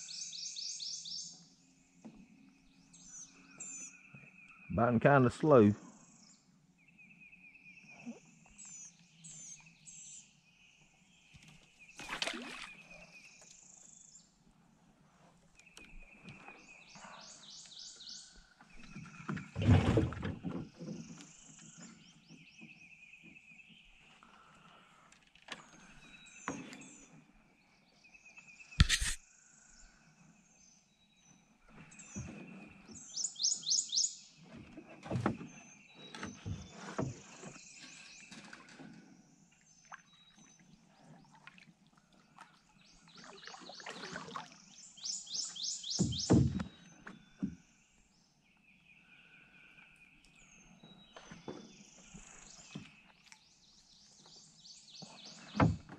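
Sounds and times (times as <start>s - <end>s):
birds chirping: 15.5s - 19.6s, 31.2s - 41.4s, 42.2s - 55.9s.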